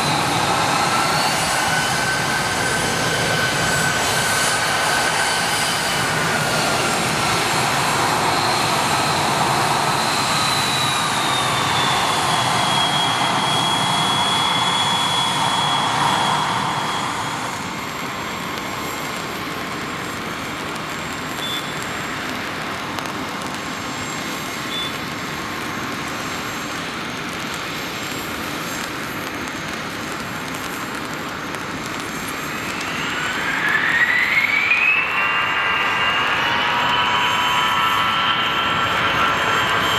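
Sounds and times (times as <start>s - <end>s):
distant jet noise: 0.0s - 39.9s
jet taxiing with turbofan whine: 0.0s - 39.9s.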